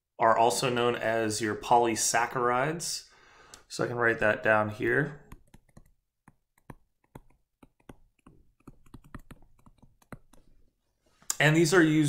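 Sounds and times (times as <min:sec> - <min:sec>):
pen tapping on screen: 0:05.2 - 0:10.6.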